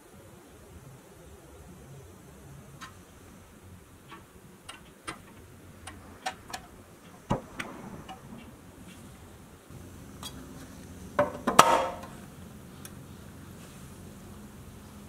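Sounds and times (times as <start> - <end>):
toy truck parts clicking: 4.1 - 7.3.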